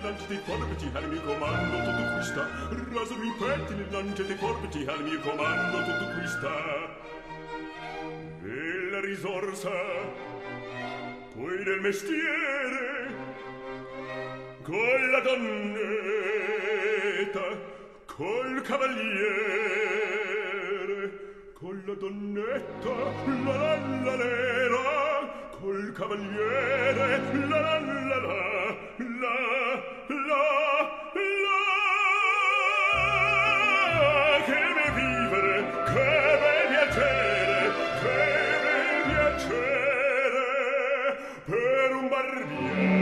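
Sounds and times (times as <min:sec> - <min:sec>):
orchestral accompaniment: 0:00.0 - 0:17.3, 0:22.5 - 0:25.3, 0:26.0 - 0:28.8, 0:32.7 - 0:40.4, 0:42.2 - 0:43.0
operatic singing with vibrato: 0:00.0 - 0:43.0.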